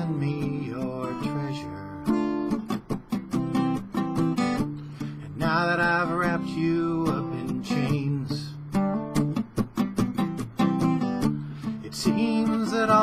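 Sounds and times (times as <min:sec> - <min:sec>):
man singing: 0:00.0 - 0:02.3, 0:05.0 - 0:08.8, 0:11.5 - 0:13.0
acoustic guitar strumming: 0:00.0 - 0:13.0.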